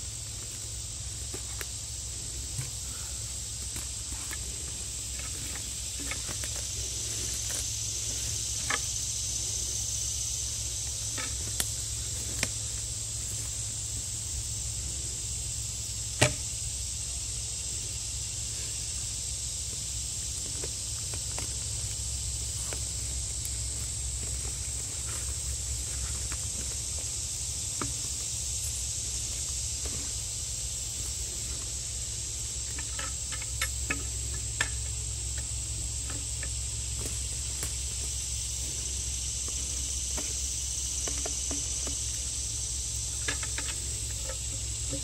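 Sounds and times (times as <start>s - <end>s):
high insect drone: 0.0s - 45.0s
wood being handled: 0.4s - 9.0s.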